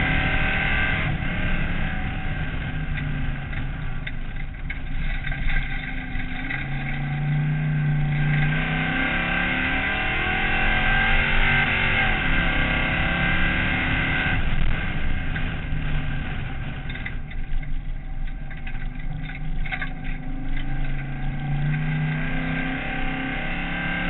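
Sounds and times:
race car engine at full power: 0.0s - 24.0s
car knocks and rattles: 2.8s - 9.1s.

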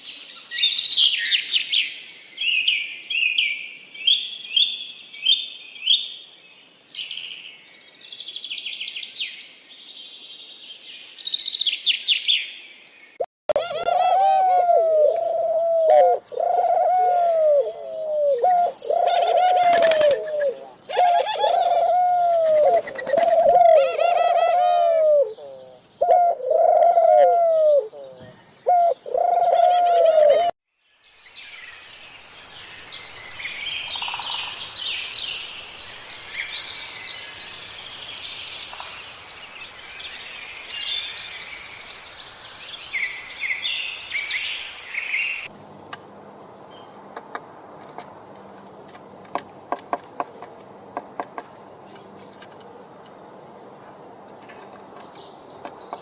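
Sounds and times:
small songbirds chirping: 0.0s - 13.2s, 27.5s - 56.0s.

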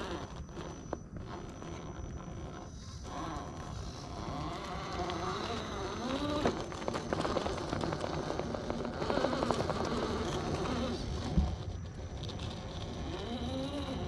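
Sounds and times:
electric motor whining: 0.0s - 14.0s.

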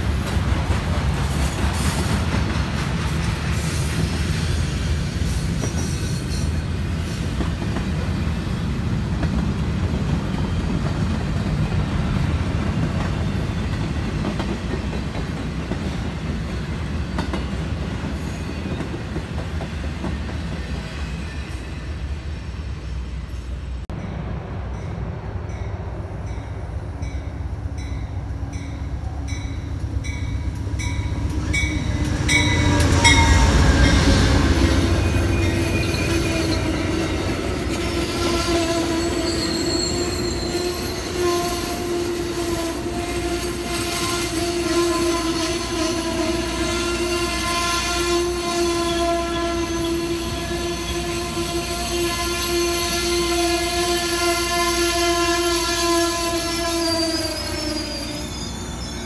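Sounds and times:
train locomotive passing: 0.0s - 59.0s
train wheels squealing: 3.1s - 8.9s, 16.6s - 23.6s, 27.8s - 59.0s
locomotive bell ringing: 24.0s - 42.0s.

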